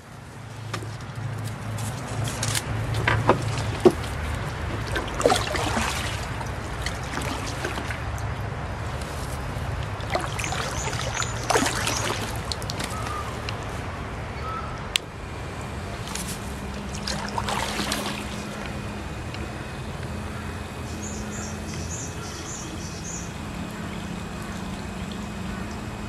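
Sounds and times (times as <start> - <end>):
paddle strokes splashing: 1.8 - 13.8, 15.9 - 19.4
water trickling off paddle: 2.8 - 13.7, 15.9 - 20.2, 22.9 - 26.0.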